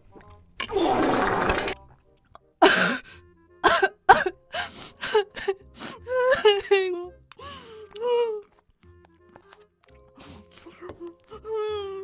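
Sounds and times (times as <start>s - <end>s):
woman coughing and spluttering: 2.6s - 3.0s, 3.6s - 4.4s
woman whimpering and sobbing: 3.8s - 8.5s, 10.2s - 12.0s.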